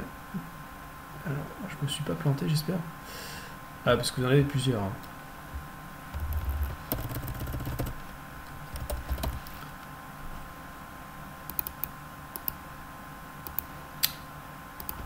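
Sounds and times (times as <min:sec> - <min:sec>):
typing on computer keyboard: 0:06.2 - 0:08.0, 0:08.7 - 0:09.5, 0:14.8 - 0:15.0
mouse clicks: 0:11.5 - 0:12.6, 0:13.4 - 0:14.2, 0:14.8 - 0:15.0.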